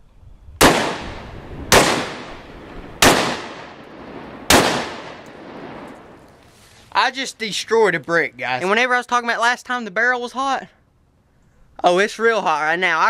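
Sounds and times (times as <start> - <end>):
rifle shots with echo: 0.6 - 6.2.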